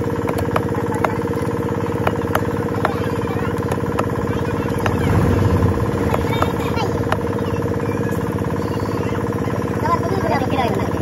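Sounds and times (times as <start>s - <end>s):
cleaver chopping on wood block: 0.0s - 5.3s, 6.0s - 7.4s
engine idling: 0.0s - 11.0s.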